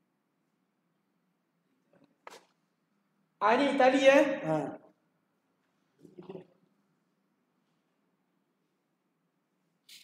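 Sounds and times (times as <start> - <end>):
soft hiss-like noise: 5.4 - 10.0.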